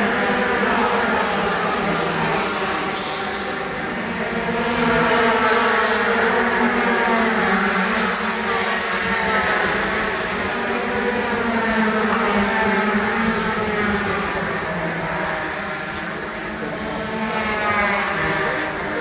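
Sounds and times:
karts racing past: 0.0s - 19.0s.

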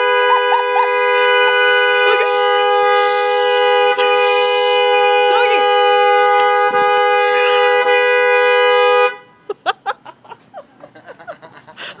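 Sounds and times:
two-note car horn blare: 0.0s - 9.4s.

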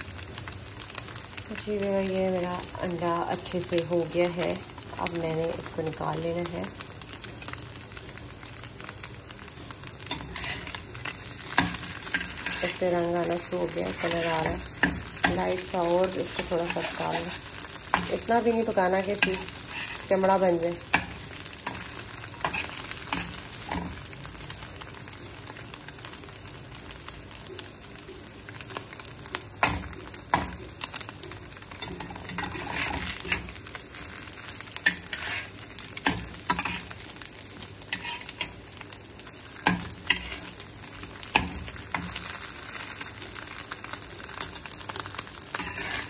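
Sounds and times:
egg sizzling in oil: 0.0s - 46.0s
spatula scraping pan: 10.0s - 24.0s, 31.8s - 37.0s, 37.8s - 38.6s, 39.6s - 40.6s, 45.5s - 46.0s.

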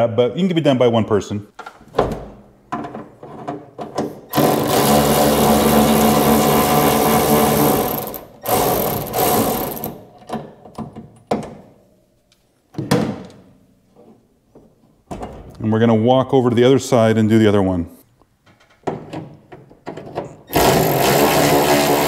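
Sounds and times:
electric ratchet whirring: 4.3s - 10.0s, 20.5s - 22.0s
small clicks and knocks: 18.4s - 20.4s.

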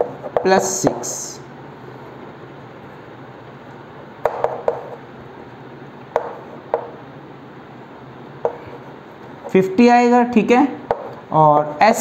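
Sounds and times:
steady low room hum: 0.0s - 12.0s
chalk tapping on chalkboard: 4.2s - 5.0s, 6.1s - 7.0s, 8.4s - 9.5s, 10.9s - 11.7s.

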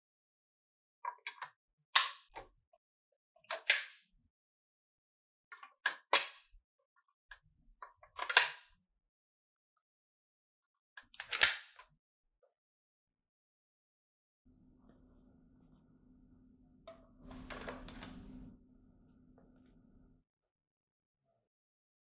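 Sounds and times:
plastic clicks: 7.8s - 8.6s, 11.0s - 11.9s, 16.8s - 18.5s.

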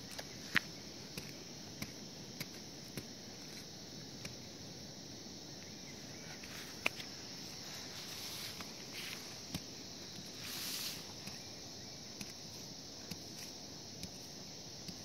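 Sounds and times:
hoe chopping into dry soil: 0.0s - 4.4s, 8.5s - 15.0s
high insect chirring: 0.0s - 15.0s.

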